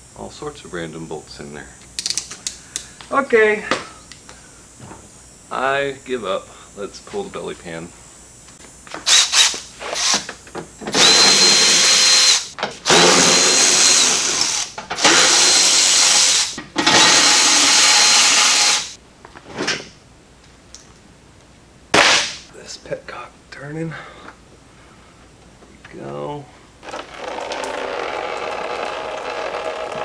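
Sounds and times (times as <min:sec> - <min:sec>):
power driver whining: 0:08.9 - 0:19.0.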